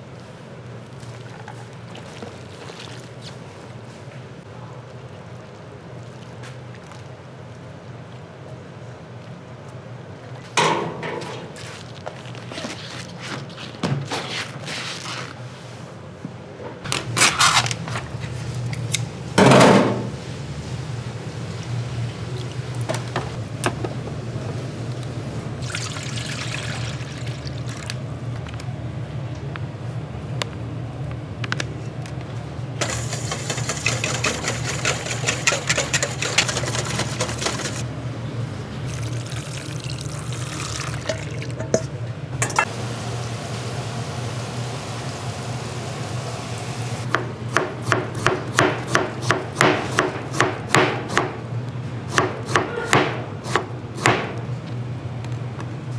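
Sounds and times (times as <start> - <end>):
steady low hum: 15.8 - 43.0
liquid pouring: 25.6 - 28.0, 38.9 - 41.8.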